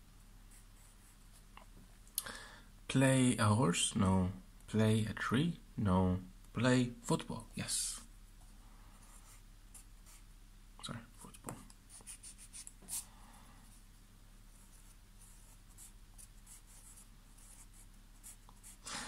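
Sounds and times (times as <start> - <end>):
pencil scratching on paper: 0.5 - 1.2, 9.0 - 10.2, 11.9 - 13.1, 14.5 - 18.8.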